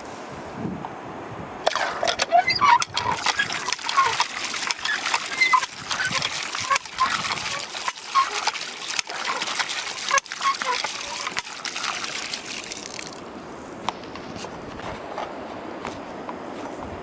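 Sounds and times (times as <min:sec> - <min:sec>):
water gushing and splashing: 0:01.6 - 0:13.8
hand pump clicks and squeaks: 0:01.7 - 0:12.2.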